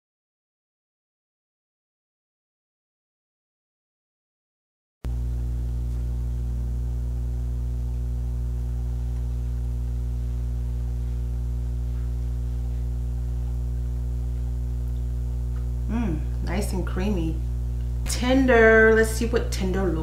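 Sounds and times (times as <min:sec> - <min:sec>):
electrical mains hum: 0:05.1 - 0:20.0.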